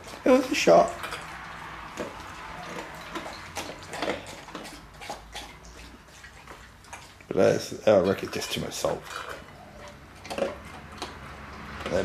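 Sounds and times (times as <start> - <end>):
dog lapping water: 0.0 - 12.0.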